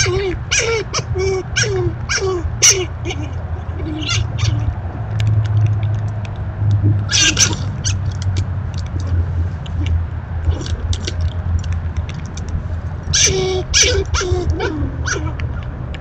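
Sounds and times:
steady low hum: 0.0s - 16.0s
small scattered clicks and taps: 5.0s - 7.1s, 8.1s - 10.0s, 10.9s - 12.6s.

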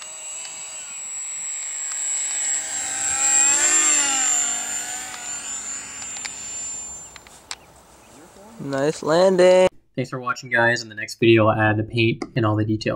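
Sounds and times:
model plane ducted fans whining: 0.0s - 9.4s.

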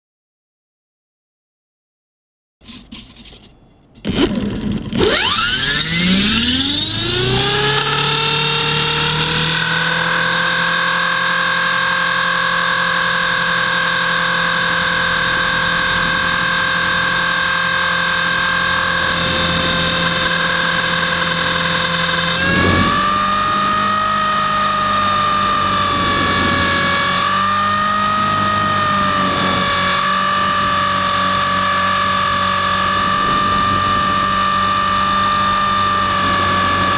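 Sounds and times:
rotor blade hum: 2.6s - 36.9s
rc helicopter motor whine: 3.9s - 36.9s.

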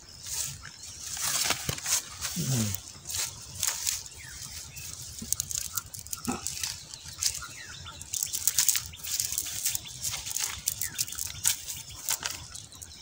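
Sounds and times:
net mesh rustling against grass: 0.2s - 13.0s.

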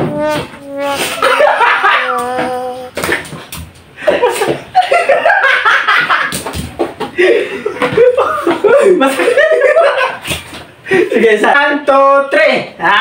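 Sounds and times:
young men laughing: 1.0s - 2.6s, 4.0s - 10.2s.

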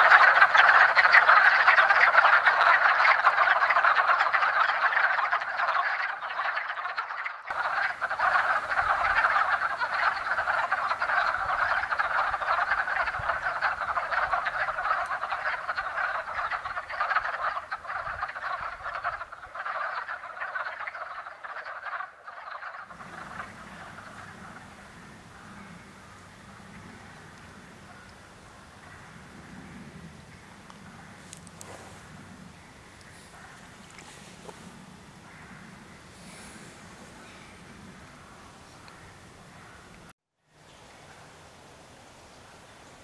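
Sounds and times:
chorus of frogs calling: 0.0s - 29.6s.

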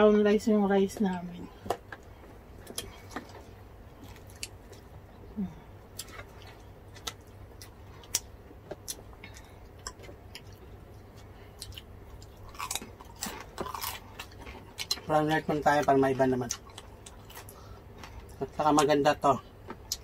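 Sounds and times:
chewing: 1.7s - 5.3s, 5.9s - 15.1s, 16.4s - 18.9s
crispy pork skin crackling: 11.7s - 17.6s.

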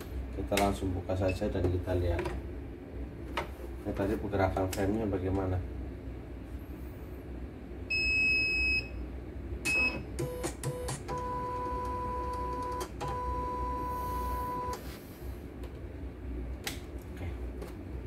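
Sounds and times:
machine beeping: 9.6s - 14.8s.

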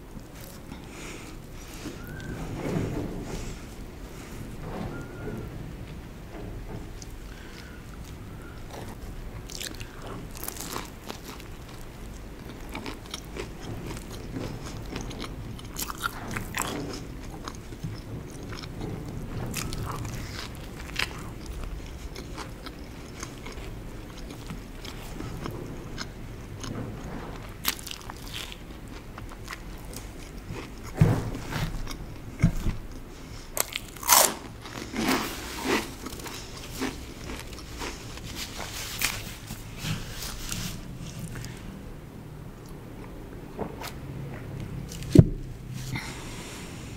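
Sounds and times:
crackly chewing bites: 7.0s - 26.8s, 33.6s - 39.5s.

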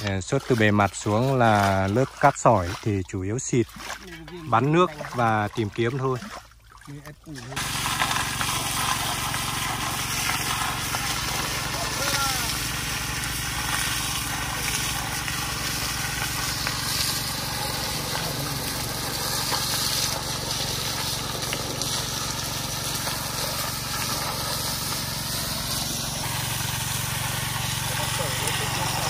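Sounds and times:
water pump engine running: 0.0s - 29.0s
water jet hissing: 6.9s - 29.0s.

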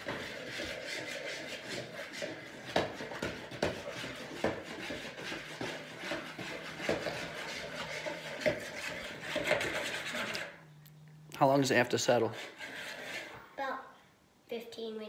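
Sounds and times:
metal spoon stirring liquid in bowl: 0.0s - 10.6s.

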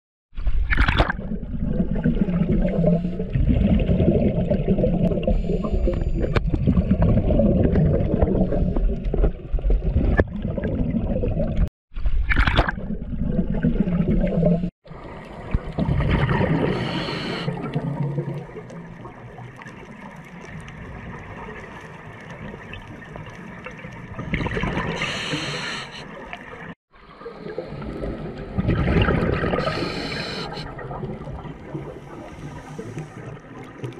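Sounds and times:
water rushing underwater: 0.4s - 33.9s
exhaled bubbles: 0.6s - 33.9s
scuba regulator breathing: 16.6s - 17.6s, 24.9s - 26.2s, 29.5s - 30.7s, 31.9s - 33.4s.

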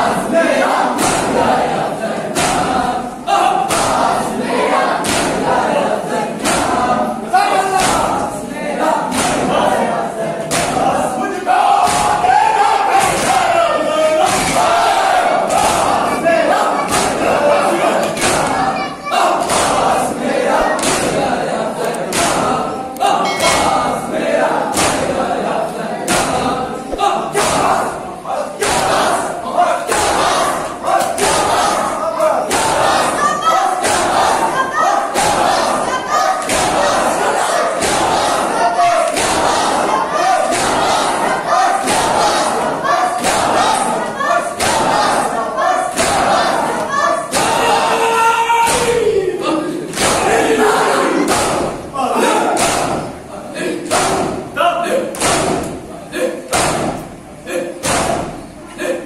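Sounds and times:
crowd of men chanting: 0.0s - 59.0s
chest-beating slaps: 1.0s - 1.4s, 2.3s - 2.9s, 3.6s - 4.1s, 5.0s - 5.5s, 6.4s - 6.9s, 7.8s - 8.2s, 9.1s - 9.6s, 10.5s - 10.9s, 11.8s - 12.3s, 14.2s - 14.8s, 16.8s - 17.4s, 19.4s - 23.9s, 24.7s - 25.2s, 26.1s - 27.9s, 28.6s - 29.3s, 36.4s - 37.2s, 39.0s - 41.2s, 43.2s - 43.9s, 44.6s - 45.1s, 48.6s - 49.0s, 49.9s - 50.4s, 51.2s - 51.8s, 52.6s - 53.1s, 53.9s - 54.4s, 55.1s - 55.9s, 56.5s - 57.1s, 57.8s - 58.5s.

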